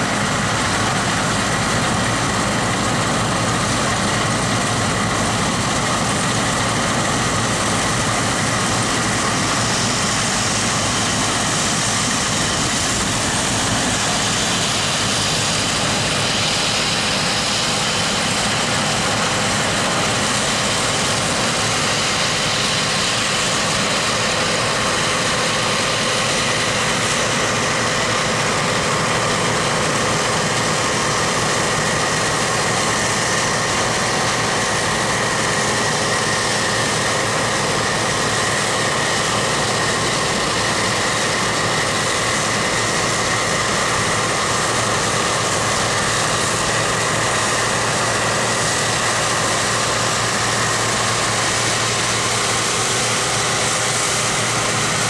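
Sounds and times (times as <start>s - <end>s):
combine harvester engine drone: 0.0s - 55.0s
high machinery whine: 0.0s - 55.0s.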